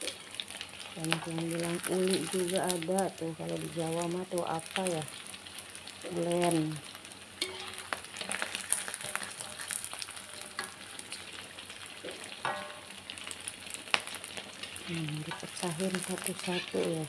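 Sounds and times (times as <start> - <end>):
food deep-frying in oil: 0.0 - 17.0
metal spatula scraping a wok: 7.4 - 11.1, 14.6 - 17.0.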